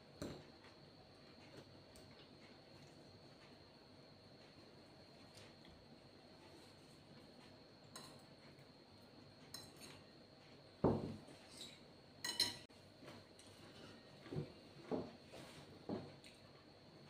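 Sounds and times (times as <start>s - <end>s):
fork clinking against plate: 11.6s - 12.6s.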